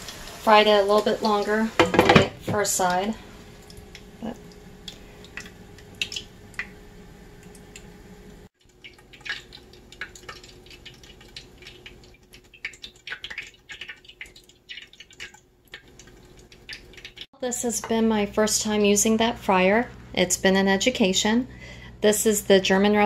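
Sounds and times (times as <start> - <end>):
oil crackling and popping: 2.6 - 6.8, 8.6 - 17.3.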